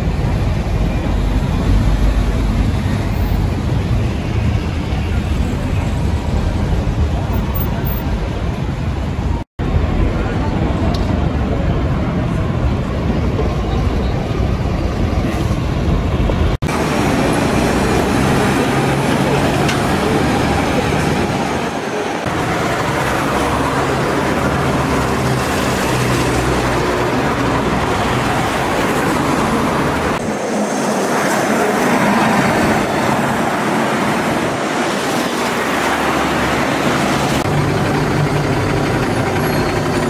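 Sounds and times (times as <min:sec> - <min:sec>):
bus passing: 0:00.0 - 0:40.0
street traffic: 0:00.0 - 0:40.0
low engine rumble: 0:36.5 - 0:40.0.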